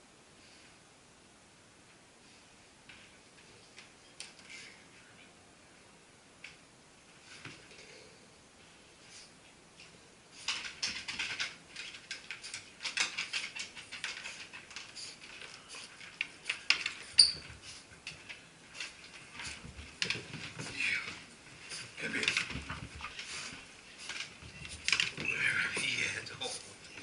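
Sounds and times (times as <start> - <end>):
dog claws clicking on wood floor: 10.4 - 25.9
person's footsteps: 15.2 - 26.0.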